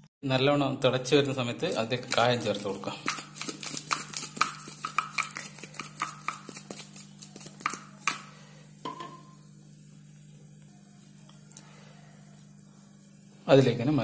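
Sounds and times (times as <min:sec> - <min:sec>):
metal spoon tapping pan: 0:07.6 - 0:09.4.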